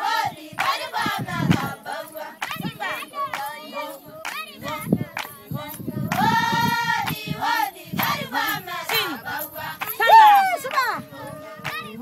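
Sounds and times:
women singing in a group: 0.0 - 12.0
hand clapping: 0.6 - 1.8, 2.4 - 6.4, 9.7 - 10.9, 11.6 - 12.0.

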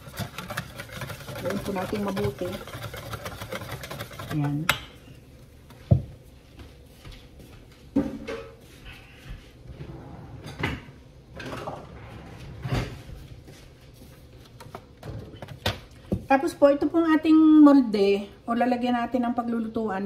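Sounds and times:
drawers and cupboards clunking: 9.7 - 13.2.

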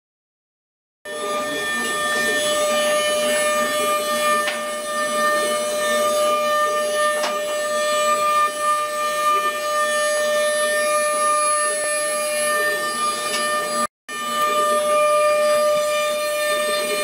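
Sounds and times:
bit cutting wood: 1.1 - 17.0
router spindle whine: 1.1 - 17.0.

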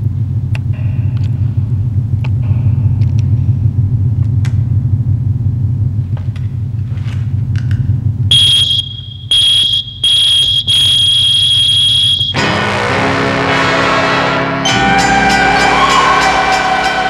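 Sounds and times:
low pulsing electronic drone: 7.9 - 17.0
high piercing electronic tone: 8.3 - 12.4
music: 12.3 - 17.0.

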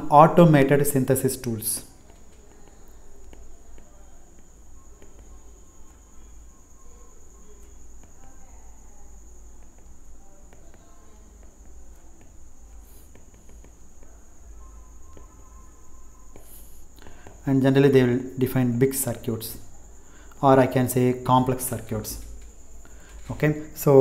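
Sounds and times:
steady high-pitched tone: 0.0 - 24.0
stylus tapping on tablet screen: 2.0 - 6.3, 7.6 - 8.5, 9.5 - 14.2, 15.0 - 15.6, 16.2 - 17.4.

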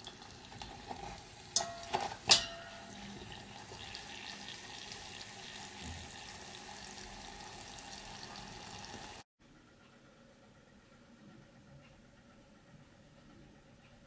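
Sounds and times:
oil sizzling: 0.0 - 9.2.

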